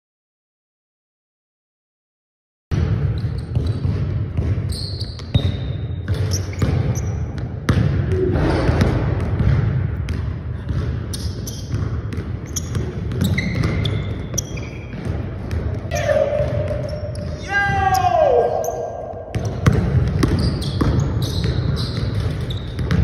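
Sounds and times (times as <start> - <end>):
basketball bouncing on wooden floor: 2.7 - 18.0, 19.0 - 23.0
shoe soles squeaking: 3.2 - 3.8, 4.7 - 7.4, 11.1 - 11.8, 12.4 - 15.0, 15.9 - 19.1, 20.2 - 23.0.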